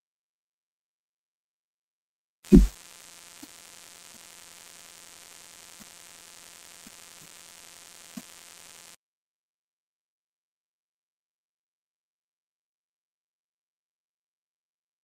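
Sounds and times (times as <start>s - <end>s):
loud low thump: 2.5s - 2.8s
faint hum and hiss: 2.5s - 9.0s.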